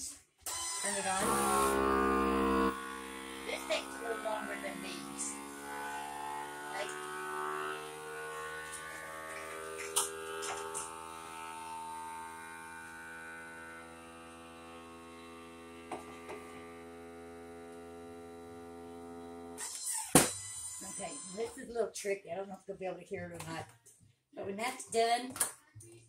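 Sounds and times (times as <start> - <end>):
vacuum pump humming: 0.5 - 19.6.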